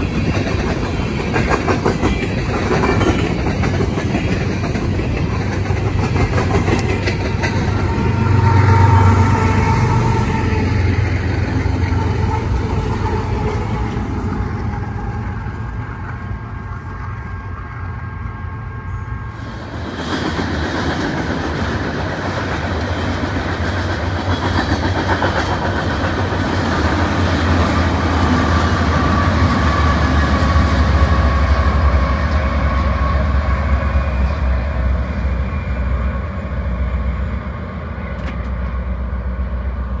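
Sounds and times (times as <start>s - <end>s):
train wheels clickety-clack: 0.0s - 18.0s, 19.4s - 36.1s, 38.1s - 38.9s
diesel locomotive drone: 0.0s - 40.0s.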